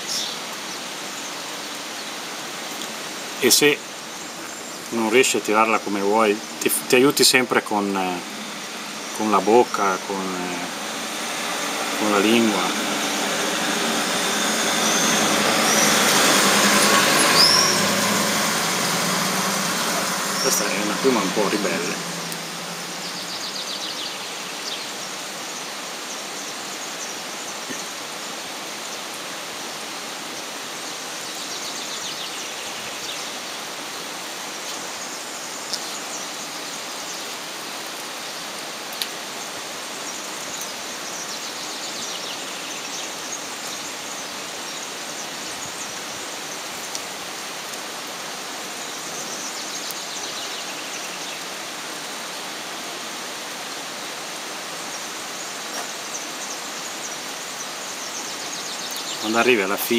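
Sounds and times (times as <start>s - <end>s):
steady rushing noise: 2.8s - 24.8s
high falling chirps: 3.4s - 24.6s.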